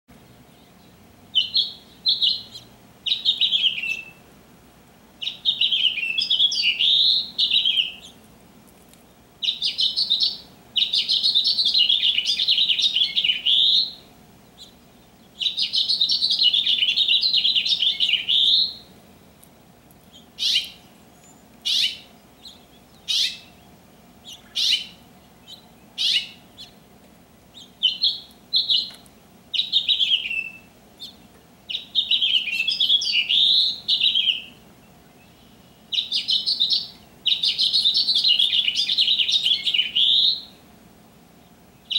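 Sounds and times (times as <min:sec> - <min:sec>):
sharp bird call notes: 0:05.2 - 0:08.1, 0:15.4 - 0:18.9, 0:20.4 - 0:20.9, 0:21.6 - 0:23.6, 0:24.2 - 0:26.7, 0:29.6 - 0:34.6, 0:35.4 - 0:40.6.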